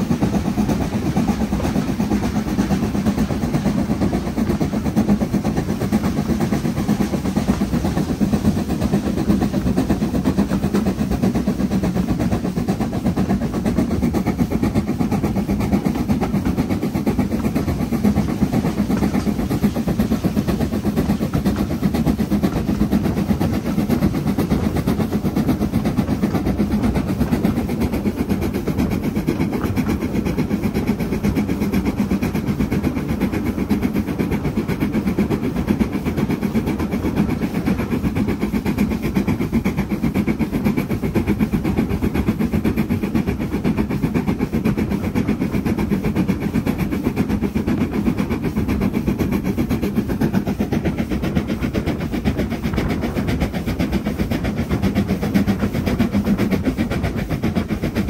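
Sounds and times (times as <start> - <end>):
steam locomotive exhaust beats: 0.0 - 58.0
train running on rails: 0.0 - 58.0.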